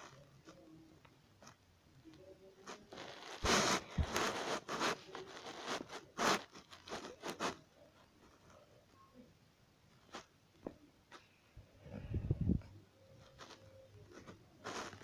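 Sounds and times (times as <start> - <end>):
scratchy drawing strokes on paper: 2.6 - 8.6, 13.2 - 15.0.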